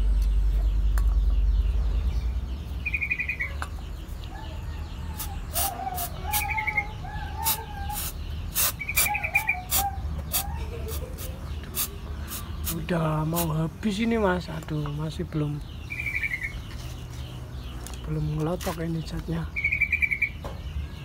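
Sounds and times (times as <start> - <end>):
birds trilling and warbling: 0.0 - 21.0
aerosol spray can hissing: 5.2 - 6.5, 7.4 - 9.1, 9.7 - 13.6.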